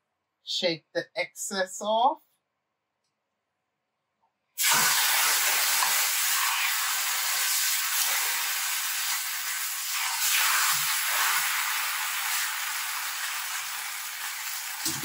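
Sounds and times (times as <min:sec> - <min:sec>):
tortilla sizzling in a frying pan: 0:04.6 - 0:15.0.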